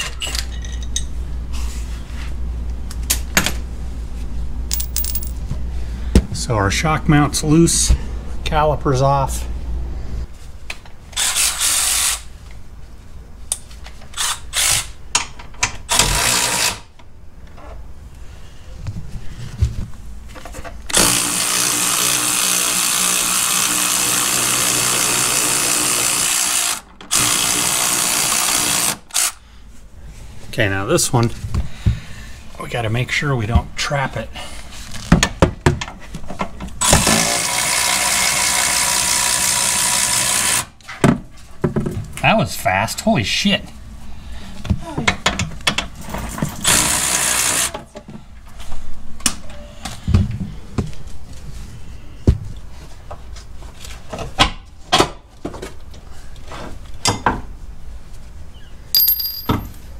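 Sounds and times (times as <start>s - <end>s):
electric ratchet running: 11.2s - 12.2s, 20.9s - 29.4s.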